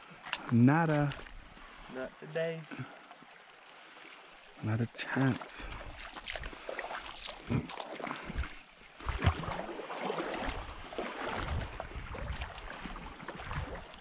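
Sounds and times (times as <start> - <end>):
water sloshing around wading legs: 0.0 - 14.0
wind rumble on microphone: 10.5 - 14.0.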